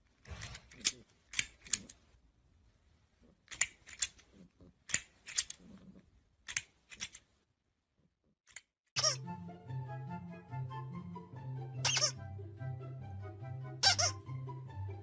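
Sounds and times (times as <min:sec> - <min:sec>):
music: 0:09.0 - 0:15.0.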